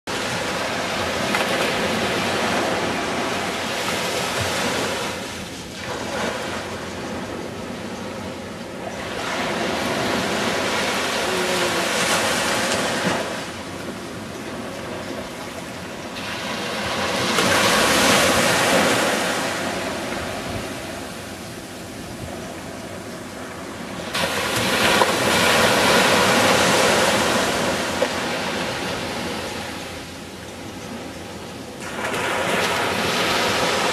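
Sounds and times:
small waves breaking on beach: 0:00.1 - 0:33.9.

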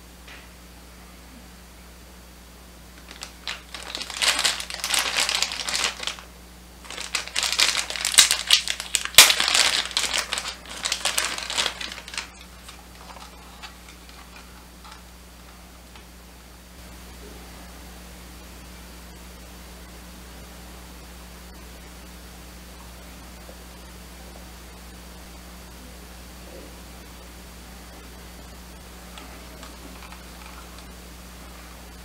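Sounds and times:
faint handling sounds: 0:03.0 - 0:06.2, 0:06.8 - 0:15.6
plastic bag crinkling: 0:03.0 - 0:15.0, 0:29.5 - 0:30.9.

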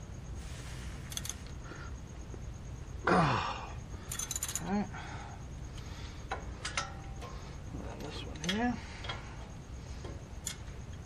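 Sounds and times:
person grunting: 0:03.1 - 0:03.6
metal tools clinking: 0:04.1 - 0:04.7, 0:06.6 - 0:09.2.

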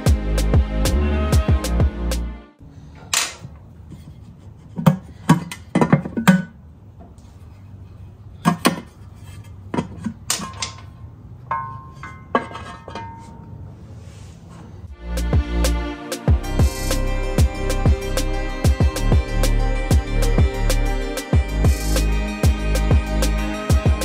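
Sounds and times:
background music with plucked guitar: 0:15.0 - 0:24.0.

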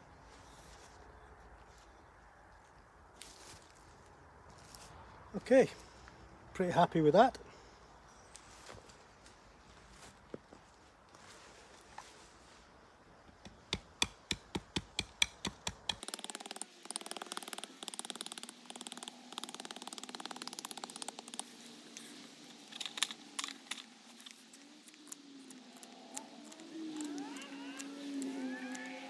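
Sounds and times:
knife carving wood: 0:13.5 - 0:21.5, 0:22.8 - 0:28.9.

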